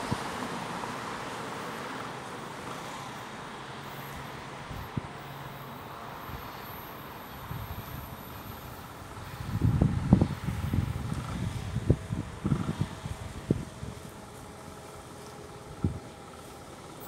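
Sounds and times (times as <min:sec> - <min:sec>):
faint low engine hum: 0:00.0 - 0:17.0
road traffic: 0:00.0 - 0:17.0
wind noise: 0:07.4 - 0:14.5, 0:15.6 - 0:16.1.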